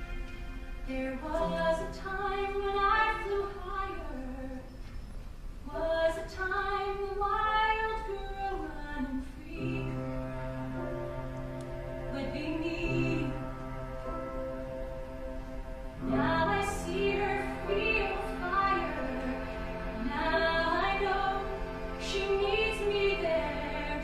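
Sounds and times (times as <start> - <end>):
soft band accompaniment: 0.0 - 24.0
woman singing a ballad: 0.9 - 4.7, 5.7 - 10.2.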